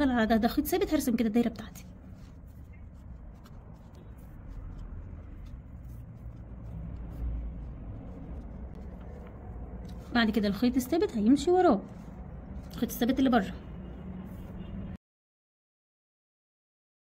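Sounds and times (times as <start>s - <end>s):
low steady rumble: 1.5s - 14.7s
cord rustling and ticking: 1.6s - 13.4s.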